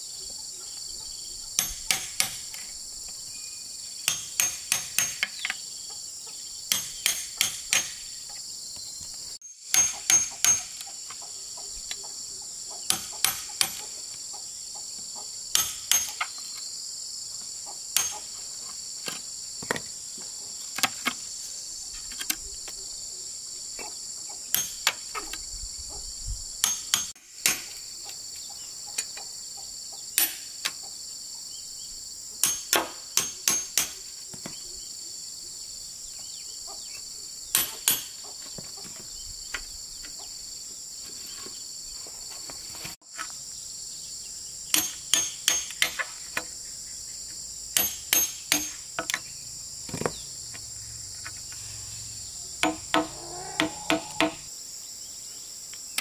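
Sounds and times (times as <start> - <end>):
high-pitched insect chorus: 0.0 - 56.0
sharp knocks: 52.6 - 54.5.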